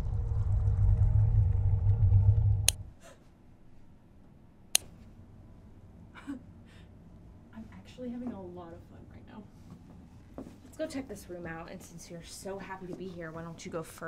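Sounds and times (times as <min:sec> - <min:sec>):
low rumbling drone: 0:00.0 - 0:03.0.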